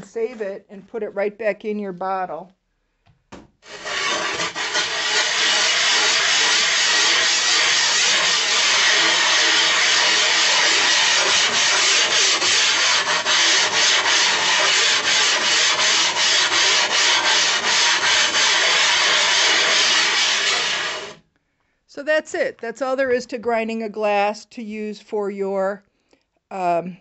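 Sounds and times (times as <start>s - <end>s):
glass muller grinding on glass: 3.7s - 21.2s.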